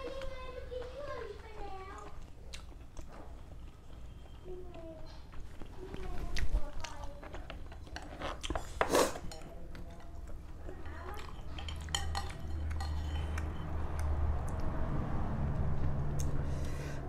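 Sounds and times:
utensils clinking against bowl: 7.5s - 13.8s.

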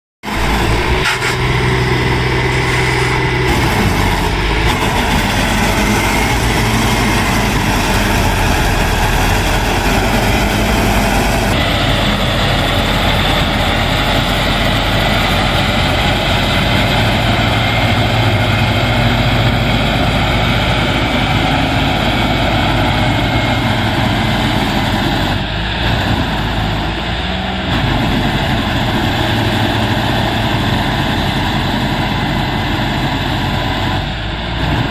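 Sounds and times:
combine harvester diesel engine: 0.2s - 34.9s.

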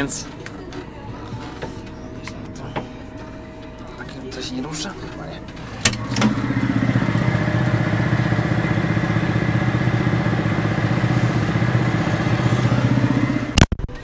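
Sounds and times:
tractor diesel engine running: 0.0s - 13.7s
cab door shutting: 5.8s - 7.8s.

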